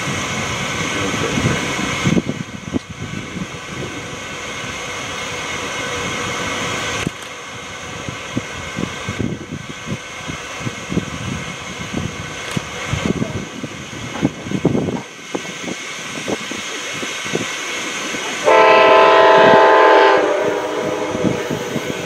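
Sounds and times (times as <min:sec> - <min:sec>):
diesel locomotives idling: 0:00.0 - 0:22.0.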